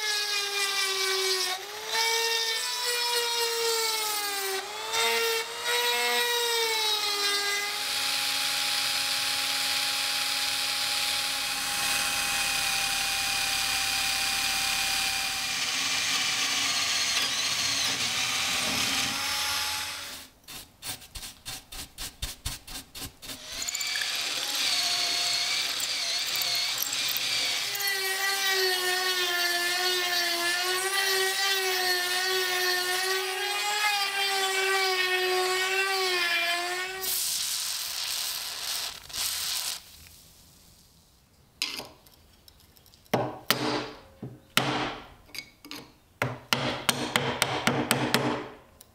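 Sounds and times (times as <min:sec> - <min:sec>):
rotary tool grinding whine: 0:07.1 - 0:20.3, 0:23.3 - 0:31.6.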